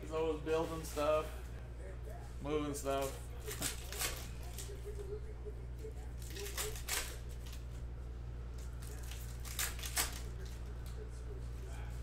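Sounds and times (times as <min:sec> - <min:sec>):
low steady hum: 0:00.0 - 0:12.0
cards and wrappers rustling: 0:02.8 - 0:05.2.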